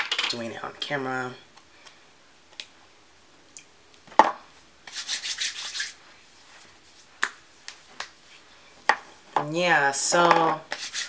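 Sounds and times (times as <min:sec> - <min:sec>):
hands rubbing face: 0:04.8 - 0:08.5, 0:10.7 - 0:11.0.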